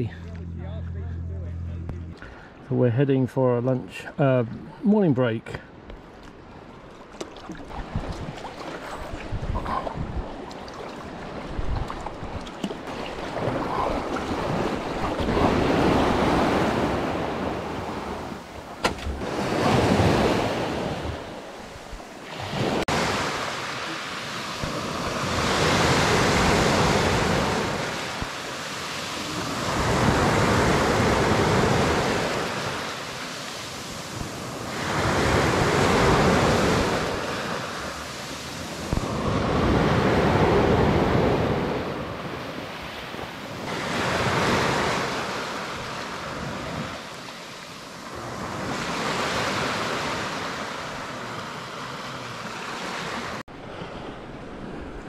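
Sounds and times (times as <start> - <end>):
waves breaking on shingle beach: 12.2 - 54.1.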